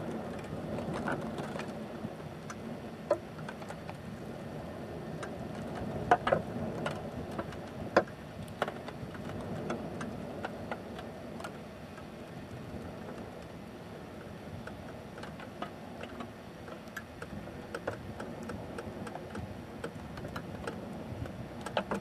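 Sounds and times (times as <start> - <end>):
fire crackles and pops: 5.2 - 22.0.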